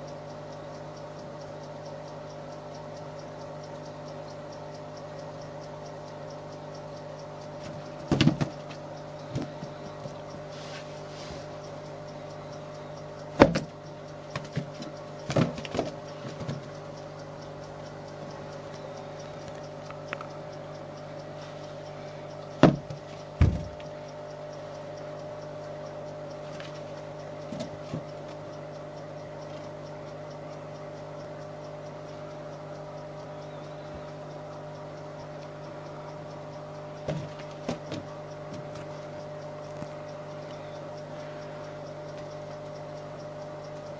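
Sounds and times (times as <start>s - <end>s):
steady background hum: 0.0s - 43.9s
sharp knocks and thumps: 7.6s - 8.7s, 13.4s - 13.7s, 14.3s - 16.7s, 22.6s - 23.8s, 37.0s - 38.9s.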